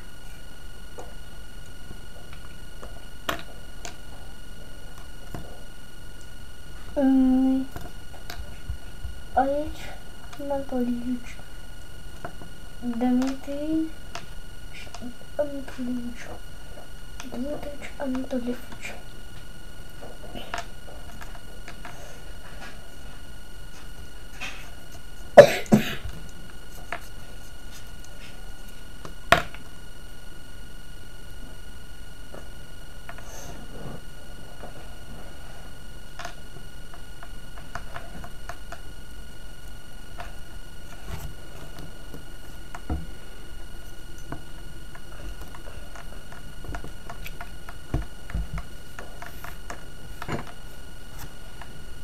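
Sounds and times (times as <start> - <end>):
faint high hum: 0.0 - 52.0
person coughing: 25.4 - 26.1.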